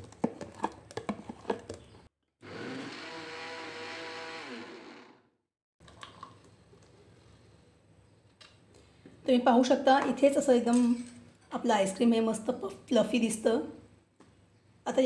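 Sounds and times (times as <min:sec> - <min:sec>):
mixer grinder running: 0:02.4 - 0:05.4.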